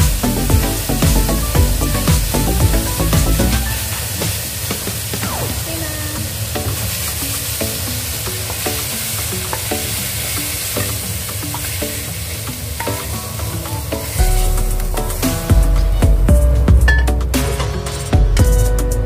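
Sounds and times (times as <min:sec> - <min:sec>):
food sizzling in a wok: 0:00.0 - 0:16.0
soft background music: 0:06.2 - 0:19.0.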